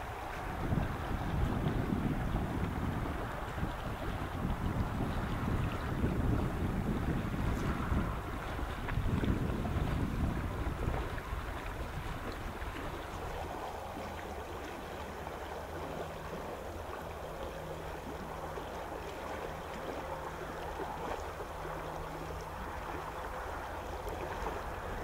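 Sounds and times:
river water rushing: 0.0s - 25.0s.

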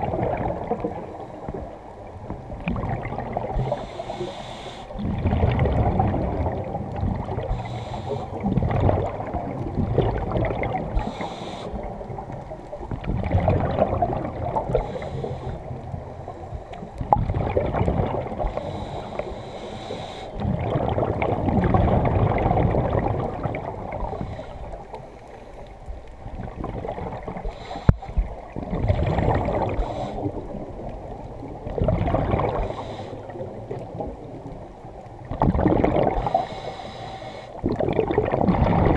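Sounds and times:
gurgling exhaled bubbles: 0.0s - 16.1s, 16.8s - 25.0s, 26.2s - 36.7s, 37.6s - 38.9s
regulator hissing inhalations: 3.7s - 5.0s, 7.5s - 8.4s, 11.0s - 11.9s, 14.8s - 15.7s, 18.5s - 20.4s, 27.5s - 28.2s, 29.8s - 30.3s, 32.6s - 33.3s, 36.2s - 37.6s.

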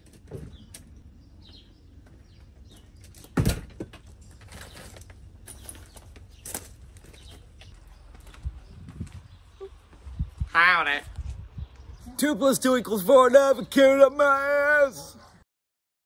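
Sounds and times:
front door opening with clunk: 0.0s - 1.7s.

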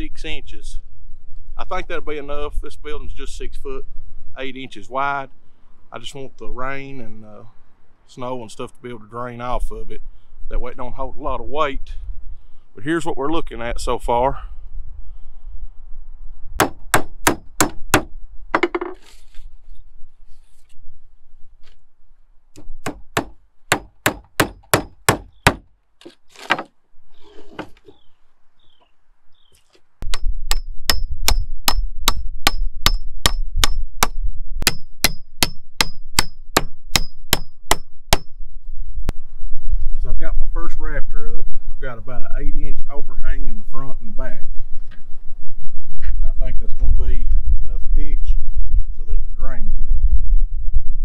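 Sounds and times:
hammer striking nails into wood: 16.6s - 18.8s, 22.6s - 25.6s, 30.1s - 38.3s.

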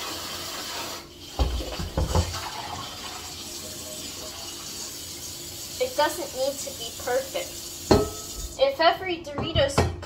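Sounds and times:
tap running water: 0.0s - 8.7s
cookware clunking in sink: 7.9s - 8.4s.

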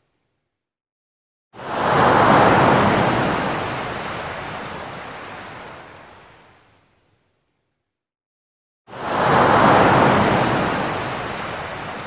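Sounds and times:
waves breaking: 9.0s - 12.0s.

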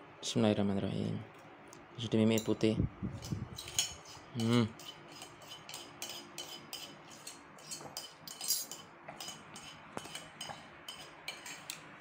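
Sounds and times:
spoon clinking against dishes: 3.2s - 11.8s.

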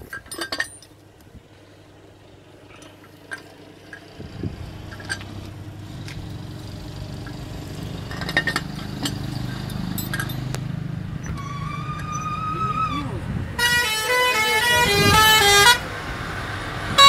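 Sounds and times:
metal clinks of jack handle: 0.0s - 1.0s, 4.9s - 5.3s, 8.1s - 10.6s
heavy vehicle engine hum: 0.0s - 17.0s
vehicle horn: 13.6s - 15.9s.

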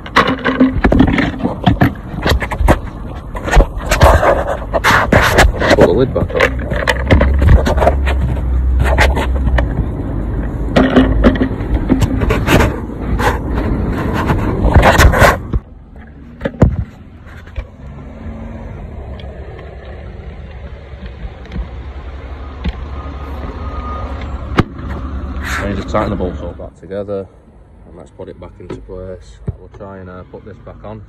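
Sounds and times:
plastic lid knocking and scraping: 0.0s - 9.9s, 10.7s - 17.6s.

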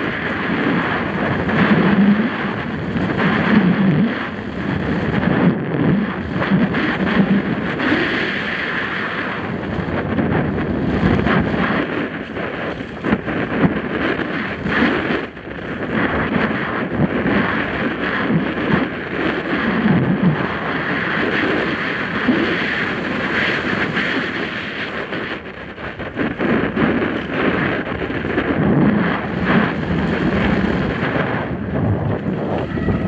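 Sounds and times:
wind on microphone: 0.0s - 33.0s
bike tyres crunching on rocky trail: 10.9s - 14.9s, 26.3s - 33.0s.

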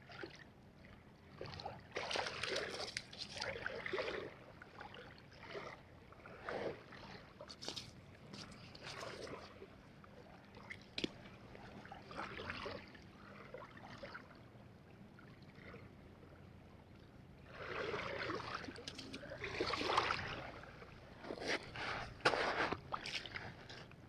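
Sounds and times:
rustling and scraping handling noise: 7.5s - 9.5s, 21.2s - 24.0s.

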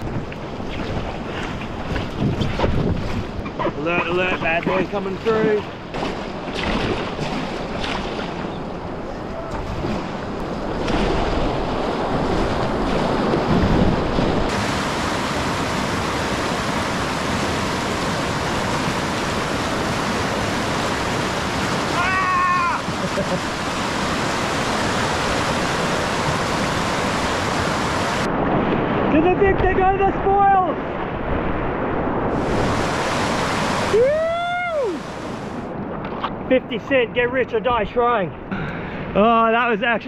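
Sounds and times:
paddle splashing: 0.0s - 29.1s, 32.2s - 36.5s
whitewater rushing: 9.0s - 30.6s, 32.2s - 35.7s
person shouting: 21.9s - 22.9s, 33.9s - 35.0s.

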